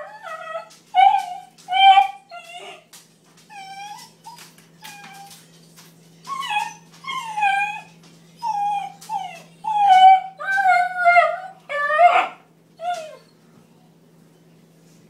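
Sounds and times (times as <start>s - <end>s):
puppy whining and yowling: 0.0s - 2.9s, 3.5s - 5.4s, 6.3s - 13.4s.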